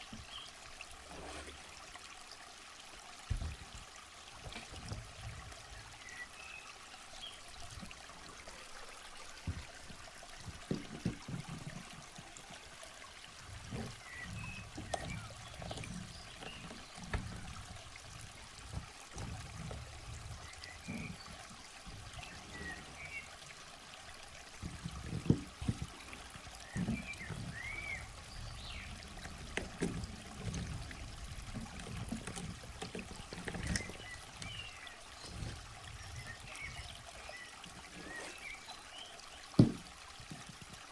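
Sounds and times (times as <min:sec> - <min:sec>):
knocks against plastic bin: 0:39.6 - 0:39.8.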